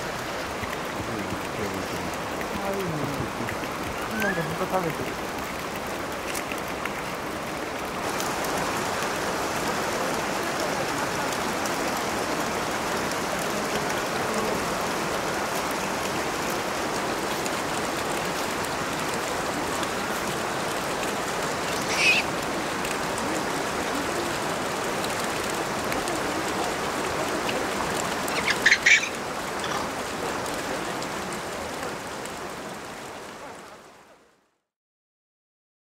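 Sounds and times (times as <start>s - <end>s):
running water rushing: 0.0s - 34.6s
high calls: 21.6s - 22.4s, 28.2s - 30.0s.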